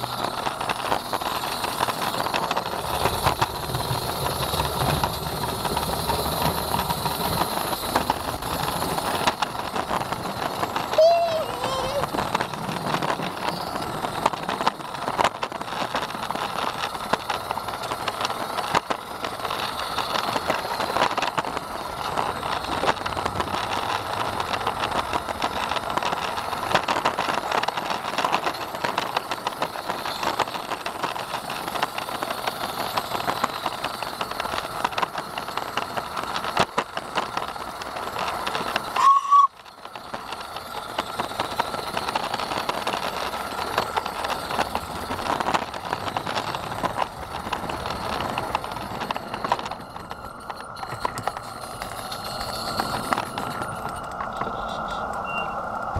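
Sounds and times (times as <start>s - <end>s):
wheel squeal: 0.0s - 55.9s
wheels clattering on rail: 0.0s - 55.9s.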